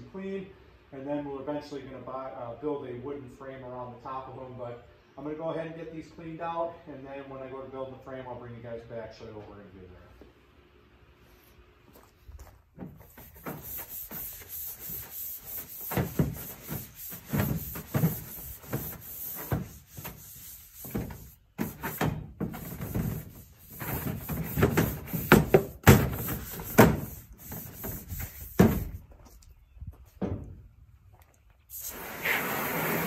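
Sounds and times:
brush scrubbing plastic: 13.0s - 28.6s
knocks against plastic walls: 20.9s - 27.1s.

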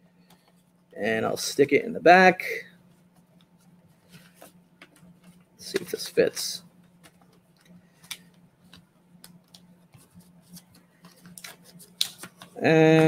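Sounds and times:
faint steady hum: 0.0s - 13.0s
man's drawn-out voice: 12.6s - 13.0s.

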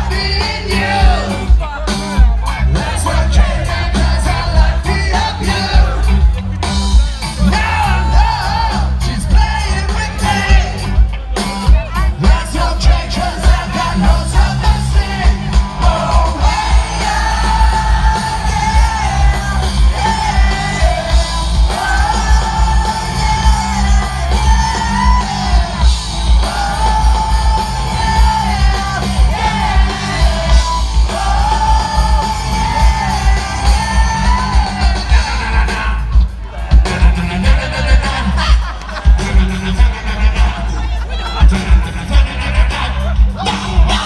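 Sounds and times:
bass and drum beat: 0.0s - 44.0s.

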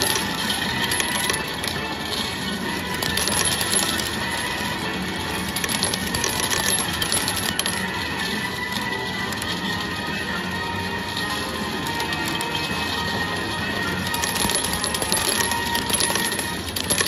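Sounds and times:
metal medals clinking: 0.0s - 8.0s, 14.0s - 17.0s.

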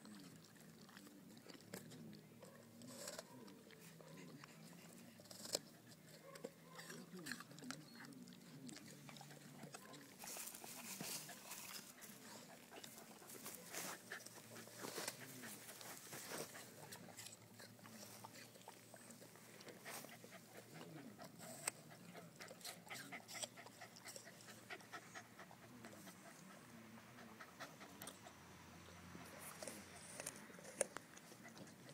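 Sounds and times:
dog crunching an apple: 0.0s - 26.6s, 27.8s - 31.9s
dog panting: 0.2s - 31.9s.

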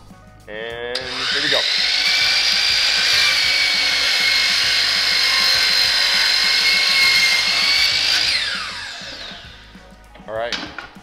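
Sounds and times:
miter saw whining: 1.0s - 9.7s
saw blade cutting wood: 1.0s - 9.7s.

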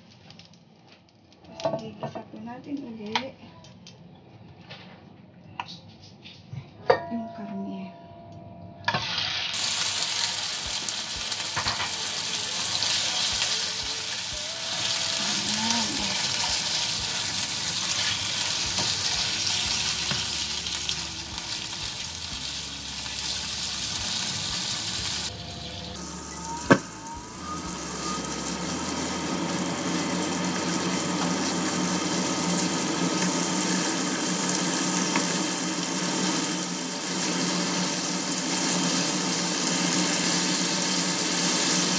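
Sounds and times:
chicken sizzling in hot oil: 8.9s - 41.9s.

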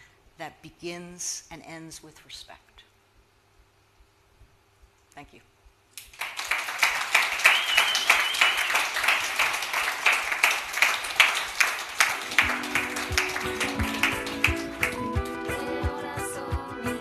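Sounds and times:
audience applauding: 6.0s - 16.5s
music: 12.2s - 17.0s.

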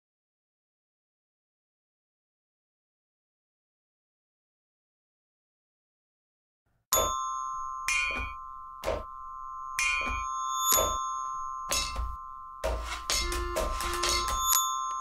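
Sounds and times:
bell-like mallet notes: 7.0s - 15.0s
held chord: 7.2s - 15.0s
sharp percussive strike: 7.9s - 9.2s, 9.8s - 14.7s.

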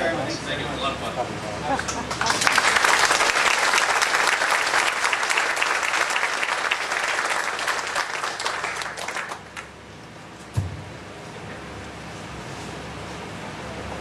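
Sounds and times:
audience applauding: 1.8s - 9.7s.

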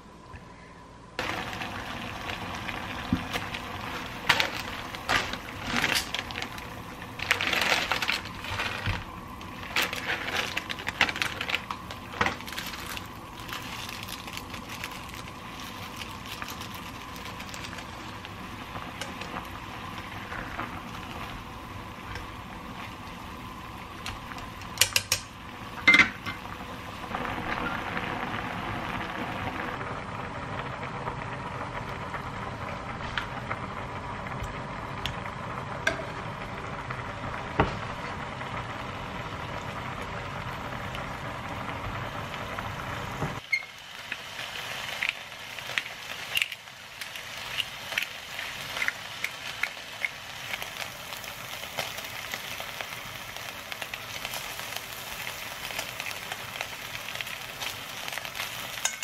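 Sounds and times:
water boiling in a pot: 1.1s - 59.0s
packets crinkling and rustling: 3.2s - 19.4s.

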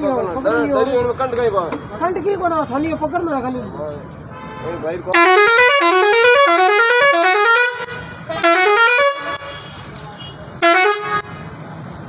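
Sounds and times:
truck musical horn notes: 4.4s - 9.9s, 10.6s - 11.5s.

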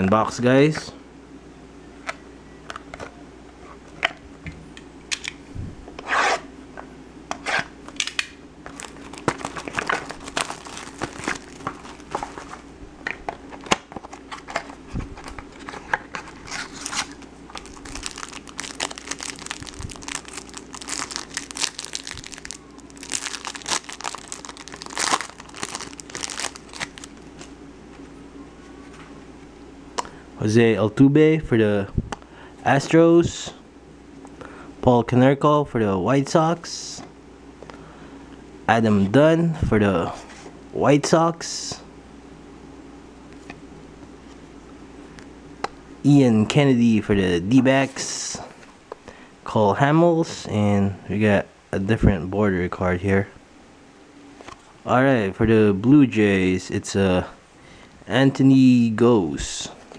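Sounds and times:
cards being handled: 8.0s - 29.2s
plastic shrink-wrap crinkling and tearing: 8.7s - 12.6s, 16.2s - 27.5s.

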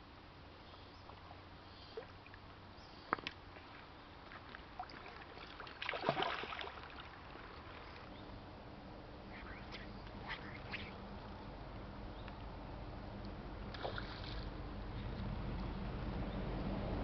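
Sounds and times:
fish thrashing and splashing in water: 4.8s - 7.5s.

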